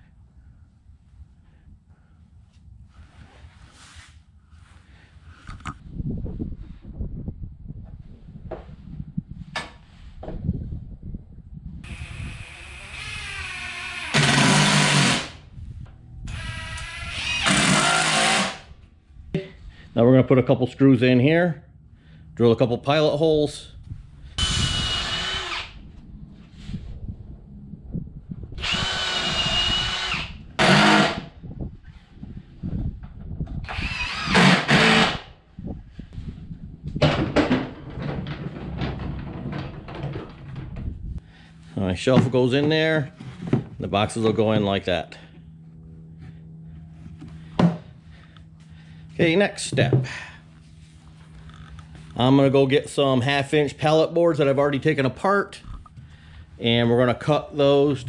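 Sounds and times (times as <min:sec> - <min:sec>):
cordless drill motor whine: 0:11.8 - 0:15.4, 0:16.2 - 0:18.7, 0:24.4 - 0:25.8, 0:28.6 - 0:31.4, 0:33.6 - 0:35.3.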